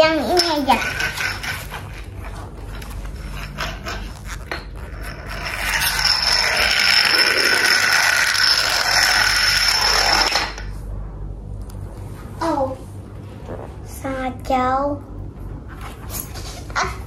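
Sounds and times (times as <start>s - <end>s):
toy motor whirring and whining: 0.4s - 2.1s, 3.2s - 10.7s
toy gear motor clicks: 5.3s - 10.5s.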